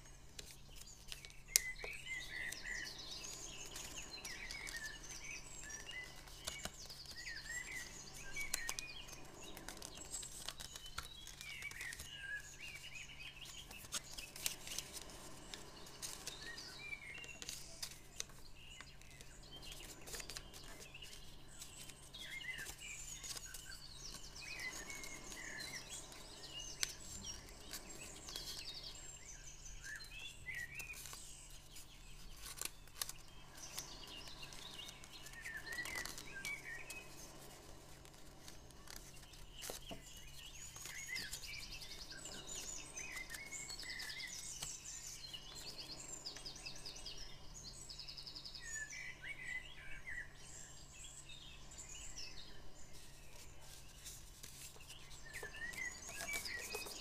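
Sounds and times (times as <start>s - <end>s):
small birds chirping: 0.0s - 57.0s
paper being creased: 3.6s - 12.6s, 19.8s - 28.6s, 30.8s - 44.7s, 53.3s - 57.0s.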